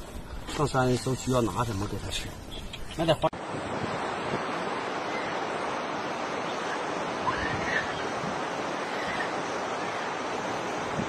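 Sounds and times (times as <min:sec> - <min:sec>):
wind on microphone: 0:03.4 - 0:11.0.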